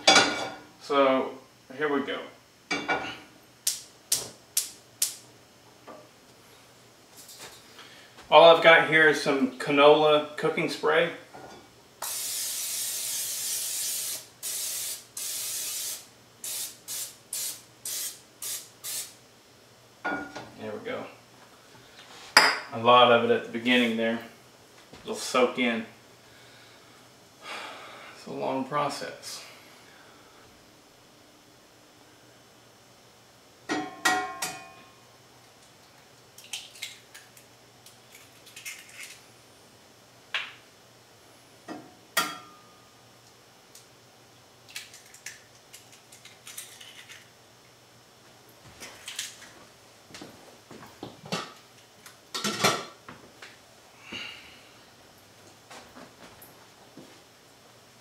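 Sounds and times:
aerosol spray hissing: 12.0 - 19.2
eggshell crackling: 35.8 - 39.2.

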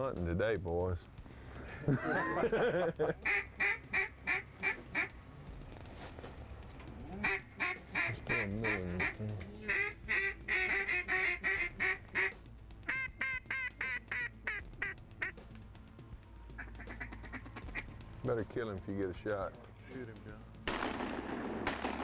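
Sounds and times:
duck call quacks: 3.2 - 5.1, 7.2 - 15.4, 16.6 - 17.9.

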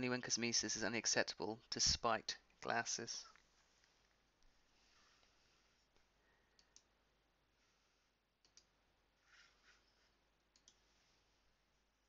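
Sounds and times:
faint computer mouse clicks: 8.4 - 8.7, 10.5 - 10.8.

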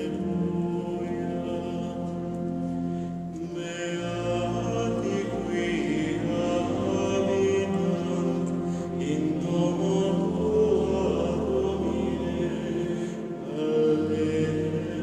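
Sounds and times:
choir of monks chanting: 3.4 - 15.0.

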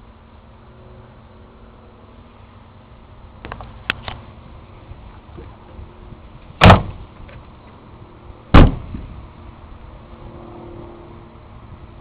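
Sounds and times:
loud heavy thumps: 6.6 - 7.0, 8.5 - 9.1.

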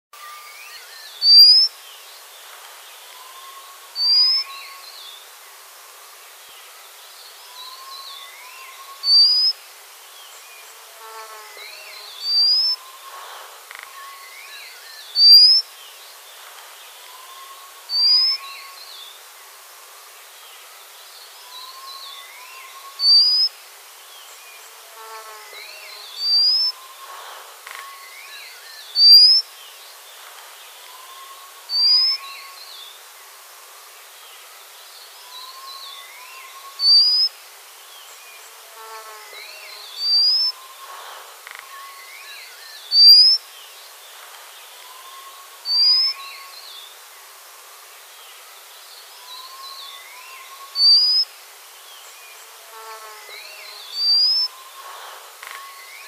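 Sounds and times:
faint bird chirps: 0.2 - 1.8, 2.9 - 5.2, 7.3 - 9.6, 11.2 - 15.7, 16.4 - 18.9, 21.4 - 23.6, 24.3 - 32.8, 35.2 - 37.4, 38.8 - 46.9, 47.8 - 51.4, 52.0 - 56.0
outdoor hiss: 0.2 - 56.0.

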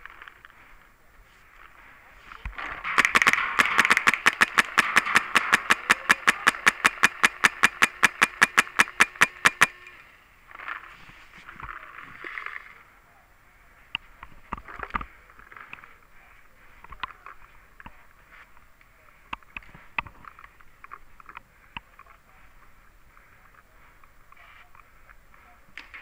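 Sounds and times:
rustling: 0.0 - 26.0
paintball marker rapid firing: 2.8 - 9.8.

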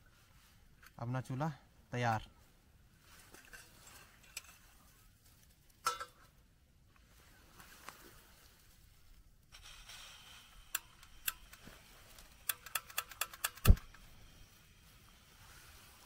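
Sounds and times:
igniter clicks: 10.6 - 11.6, 12.2 - 14.1.

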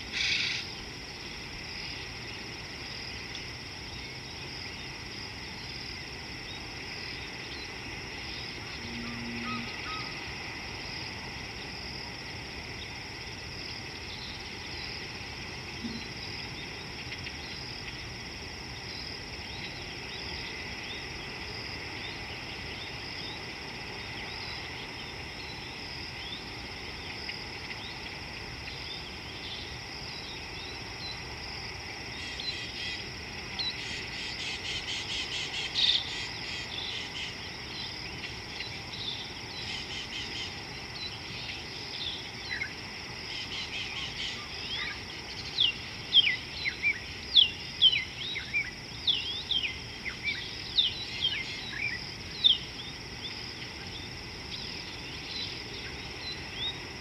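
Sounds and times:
insects trilling: 0.0 - 57.0
faint bird chirps: 8.4 - 10.2, 15.8 - 17.6.

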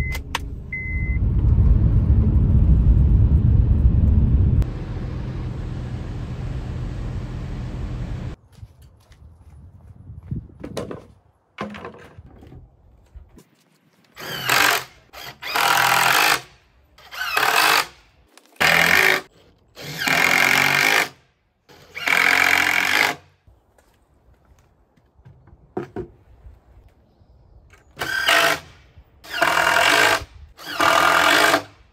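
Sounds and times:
cordless drill driving screws: 28.0 - 28.6, 29.2 - 31.7.

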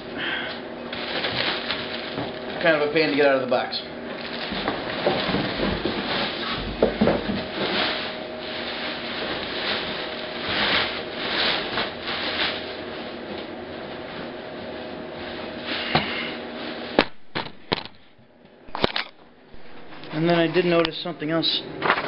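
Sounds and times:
plastic wrapping crinkling: 0.9 - 14.3.

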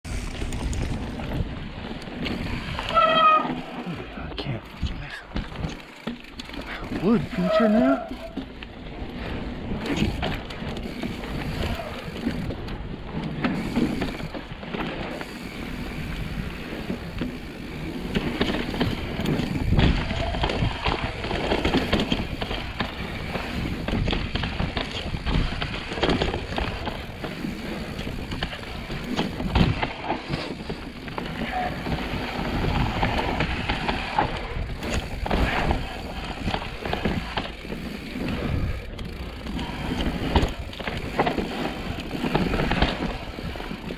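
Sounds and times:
wind rumbling on microphone: 0.0 - 4.1, 15.6 - 43.9
bike knocking and rattling: 0.0 - 43.9
tyres rolling over dirt: 0.1 - 43.9.

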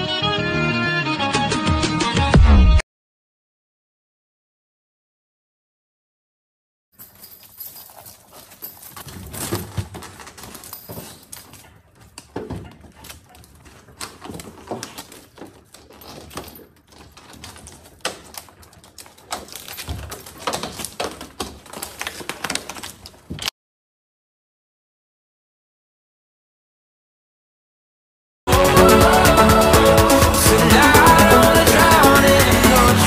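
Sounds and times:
dog paws scraping brick: 7.0 - 23.4.

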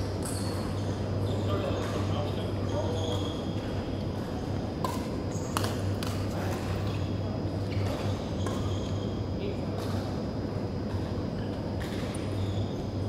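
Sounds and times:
steady low hum: 0.0 - 13.0
rackets hitting shuttlecock: 0.2 - 0.7, 4.8 - 6.6, 7.8 - 8.7, 11.8 - 12.3.

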